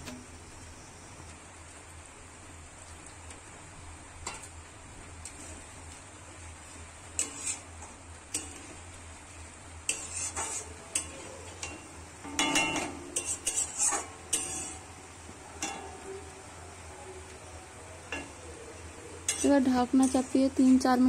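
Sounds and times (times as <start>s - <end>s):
spatula scraping metal pan: 7.2s - 7.7s, 9.9s - 15.0s, 19.2s - 20.8s.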